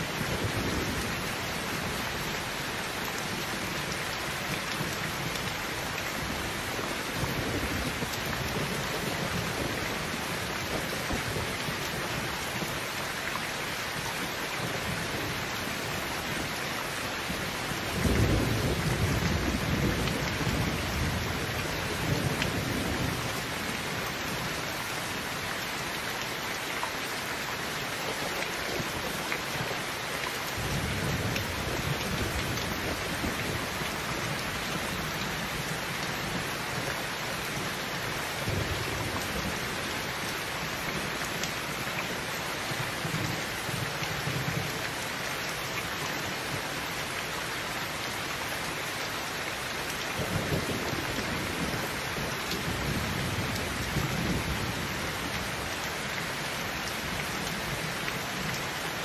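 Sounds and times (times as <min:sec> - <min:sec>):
low rumble of thunder: 0:00.0 - 0:02.5, 0:17.3 - 0:24.6, 0:30.5 - 0:36.9, 0:50.1 - 0:55.7
heavy rain falling: 0:00.0 - 0:59.0.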